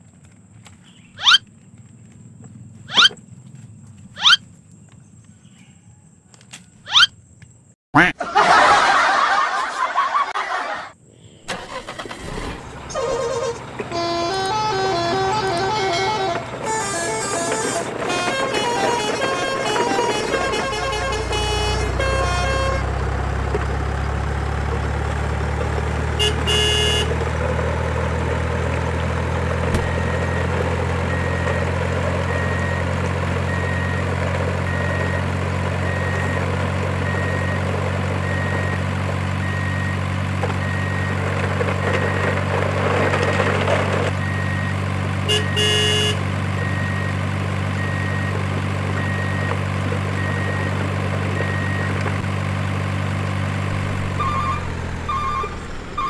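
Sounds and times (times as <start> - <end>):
truck engine idling: 11.0 - 56.0
horn toot: 11.5 - 23.0, 26.2 - 27.2, 45.3 - 46.2.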